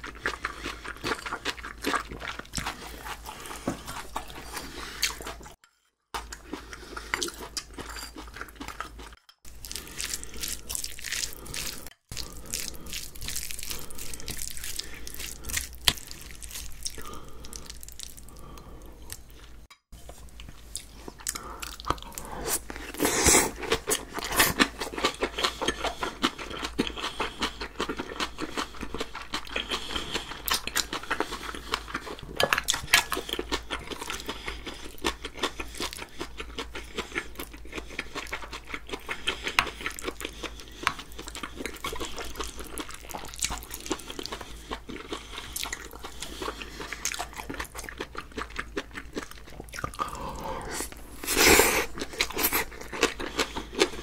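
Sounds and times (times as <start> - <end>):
wet chewing: 0.0 - 5.6, 6.2 - 54.0
spoon scraping and clinking bowls: 7.6 - 8.4.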